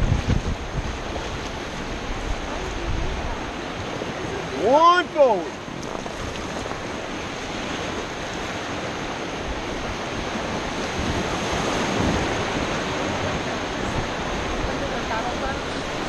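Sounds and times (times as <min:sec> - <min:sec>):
whitewater rapids rushing: 0:00.0 - 0:16.0.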